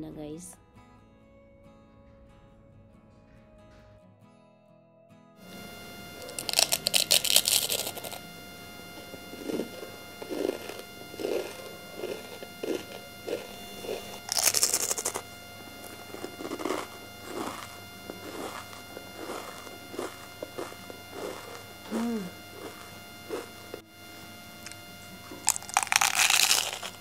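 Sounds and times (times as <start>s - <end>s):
rhythmic chewing: 5.4s - 23.8s, 24.6s - 27.0s
crunch of biting into pastry: 5.6s - 8.2s, 9.4s - 23.5s, 24.7s - 27.0s.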